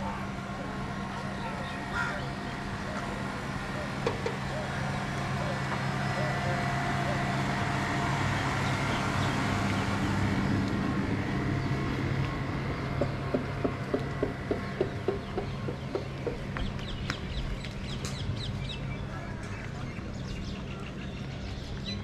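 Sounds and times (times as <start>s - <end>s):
low engine hum: 0.0s - 22.0s
fowl calling: 1.5s - 3.0s.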